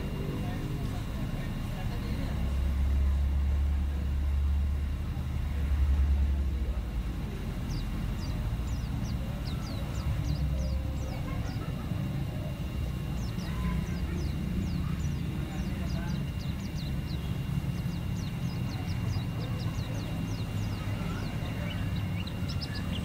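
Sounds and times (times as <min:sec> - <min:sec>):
high downward-sliding bird chirps: 0:07.6 - 0:11.8, 0:12.7 - 0:23.0.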